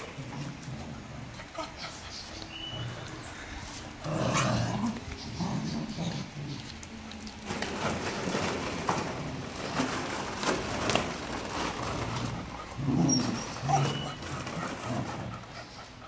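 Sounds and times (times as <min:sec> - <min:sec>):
dogs growling in play: 0:00.0 - 0:06.9, 0:07.5 - 0:16.0
plastic balls rattling: 0:06.6 - 0:15.4.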